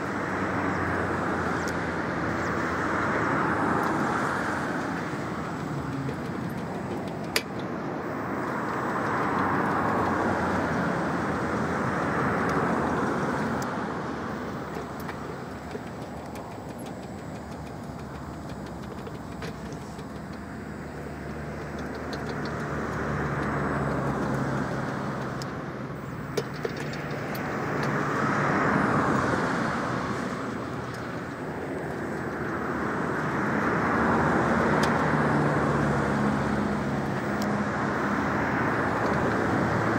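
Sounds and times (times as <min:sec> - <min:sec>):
cars passing tyre noise: 0:00.0 - 0:39.9
sharp clicks: 0:03.8 - 0:10.8, 0:14.4 - 0:28.0.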